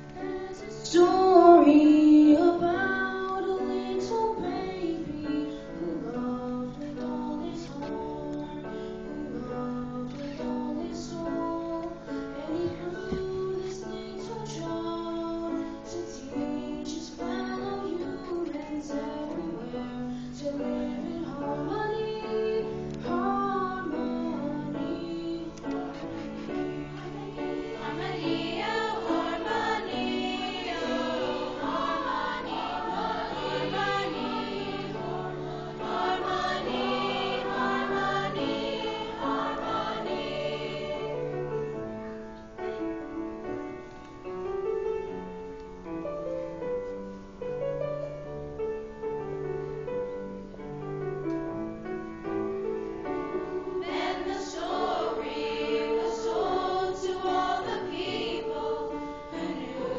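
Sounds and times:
mixed choir singing long chords: 19.5 - 41.9, 53.2 - 59.9.

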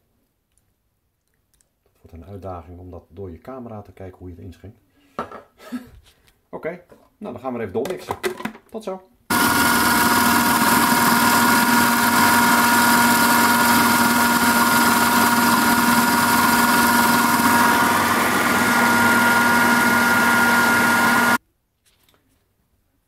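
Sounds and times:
food processor whirring: 9.3 - 21.4.

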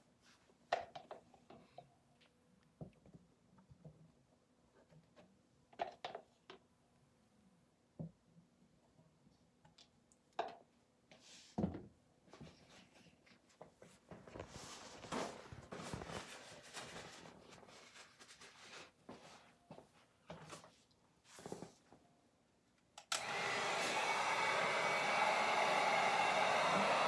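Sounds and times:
rustling: 12.4 - 19.8.

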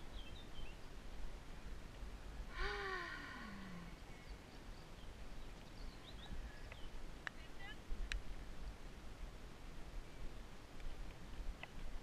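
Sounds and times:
faint bird chirps: 0.0 - 0.9, 2.6 - 7.0
low wind rumble: 0.0 - 12.0
breathy falling vocal sigh: 2.5 - 4.0.

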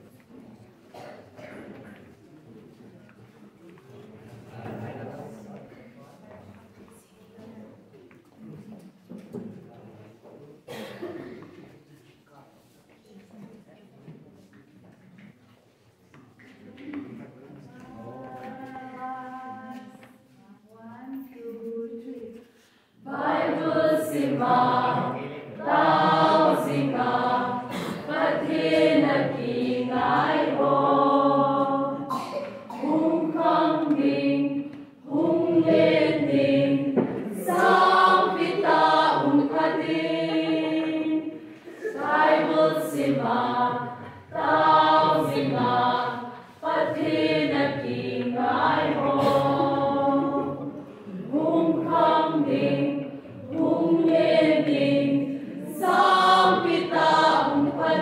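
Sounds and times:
mixed choir singing: 17.6 - 20.7, 21.8 - 58.0.

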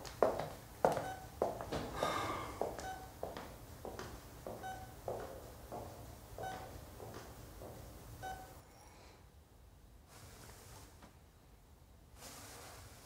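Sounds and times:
hard-soled footsteps: 0.0 - 8.2
patient monitor beeping: 0.9 - 3.6, 4.4 - 8.6.

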